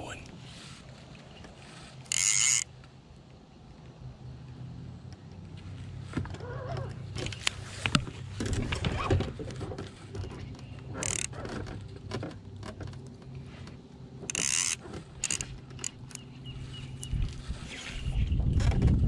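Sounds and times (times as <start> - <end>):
steady low hum: 0.0 - 19.0
fishing tackle clicks and rattles: 2.0 - 2.7, 7.2 - 16.3.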